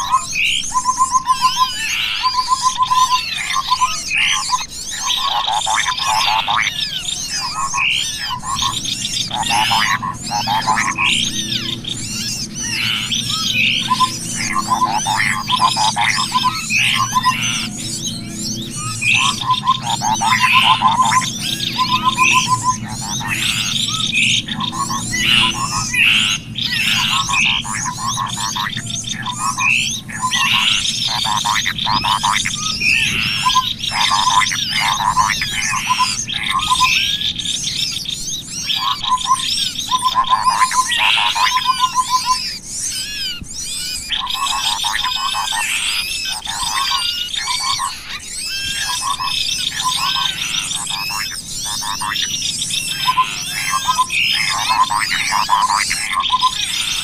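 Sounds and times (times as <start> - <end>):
small birds chirping and trilling: 0.0 - 57.0
low rapid stuttering bird note: 5.2 - 37.2.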